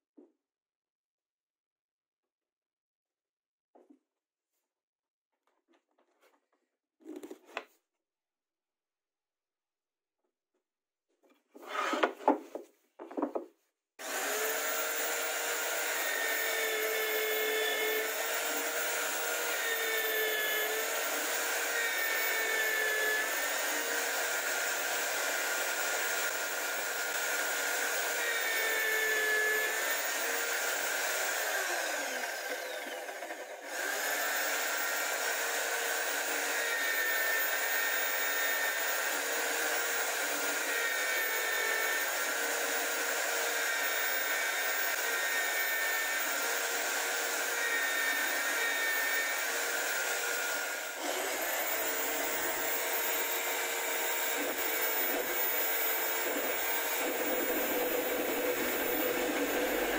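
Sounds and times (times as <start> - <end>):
drill press motor whining: 14.0 - 59.9.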